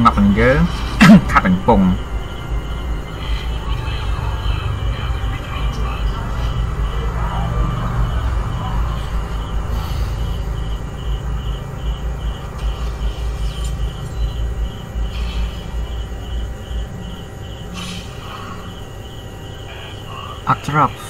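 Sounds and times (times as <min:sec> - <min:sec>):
low rumble: 0:00.0 - 0:19.4
insect chirping: 0:00.0 - 0:21.0.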